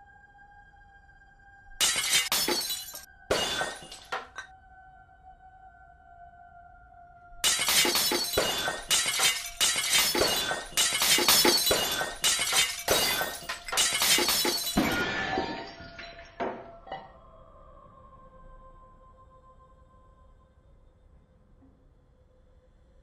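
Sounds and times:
falling glass clinking: 1.8s - 4.5s, 7.4s - 17.1s
glass bottles shattering: 1.8s - 4.5s, 7.4s - 17.1s.

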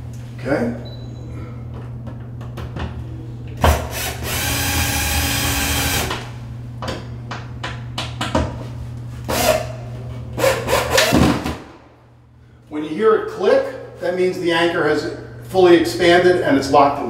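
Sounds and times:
cordless drill driving screw: 3.9s - 6.1s.

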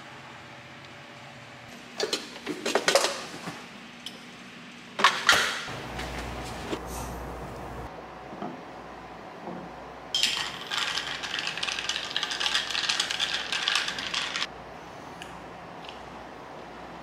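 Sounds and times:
steady low hum: 5.6s - 17.0s.

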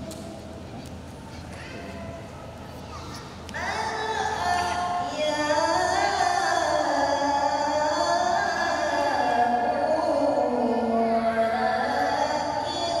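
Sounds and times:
boy chanting into microphone: 2.9s - 13.0s.

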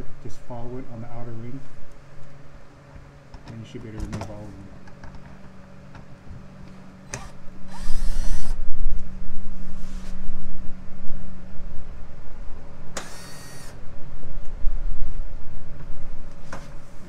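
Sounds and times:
cordless drill running: 7.0s - 8.6s, 13.0s - 13.8s.

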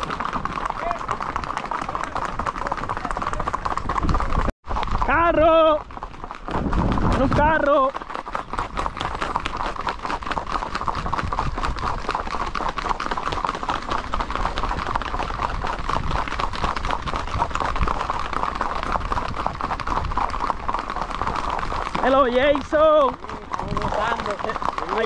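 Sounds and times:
hooves clattering on asphalt: 0.0s - 25.0s.

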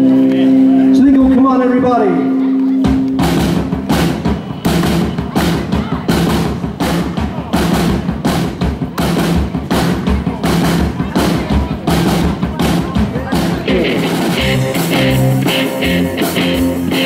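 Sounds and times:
drums: 0.0s - 17.0s
upright bass: 11.2s - 17.0s.

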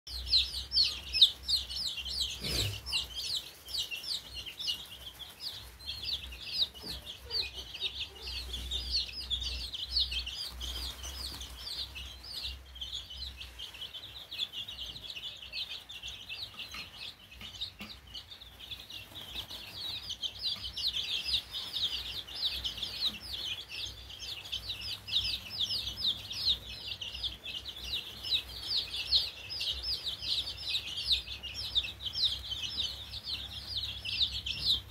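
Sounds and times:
chicks peeping: 0.1s - 34.9s.

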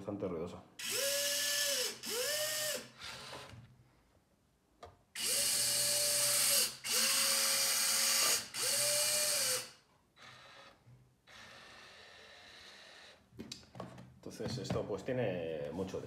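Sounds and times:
toy excavator motors whining: 5.2s - 13.2s.

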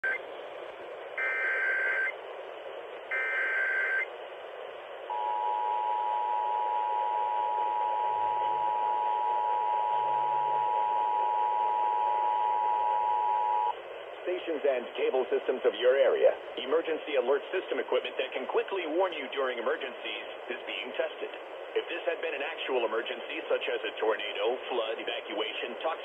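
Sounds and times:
radio reception hiss: 0.0s - 26.0s
two-tone attention signal: 1.2s - 2.1s, 3.1s - 4.1s, 5.1s - 13.7s.

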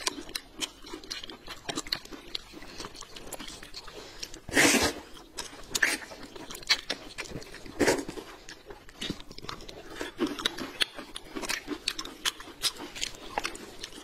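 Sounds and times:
noodles slurped and chewed: 0.0s - 14.0s
wet mouth smacks and clicks: 6.5s - 7.3s.

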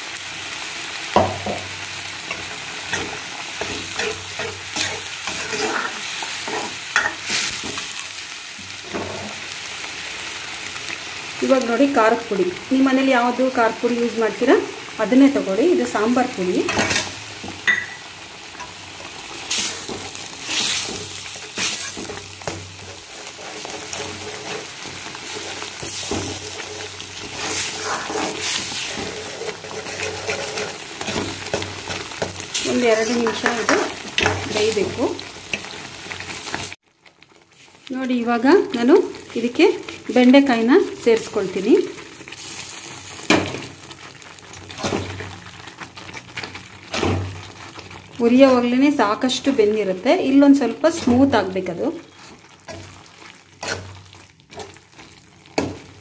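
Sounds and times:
paste sizzling in oil: 0.0s - 56.0s
metal spatula scraping pan: 2.3s - 7.8s, 19.5s - 34.6s.

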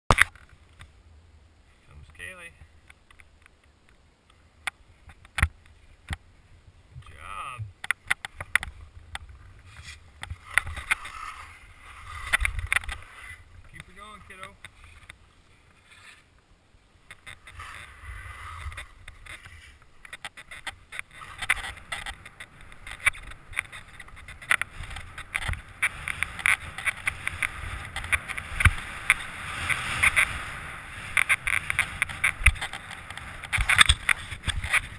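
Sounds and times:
skis scraping over snow: 8.7s - 16.3s, 17.2s - 34.9s.

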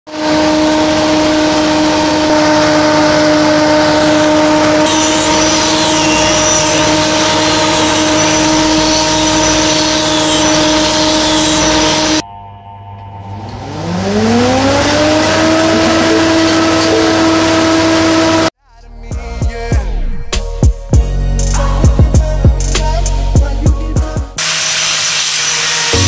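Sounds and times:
electric motor hum: 0.1s - 12.2s, 13.3s - 18.5s.

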